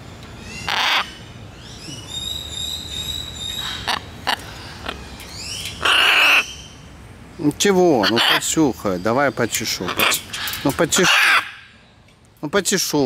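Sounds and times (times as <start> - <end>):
macaw squawking: 0.5 - 1.2, 1.9 - 6.7, 8.0 - 8.6, 9.7 - 11.8.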